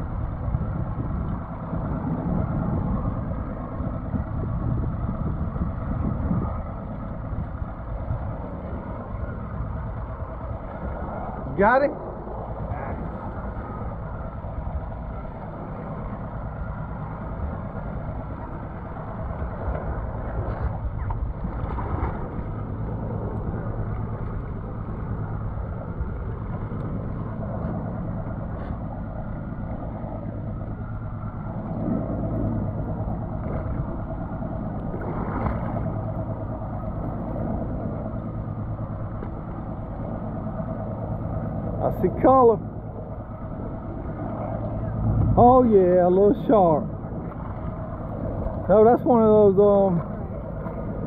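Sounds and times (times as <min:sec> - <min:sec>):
outboard motors idling: 0:00.0 - 0:51.0
wind buffeting microphone: 0:00.0 - 0:51.0.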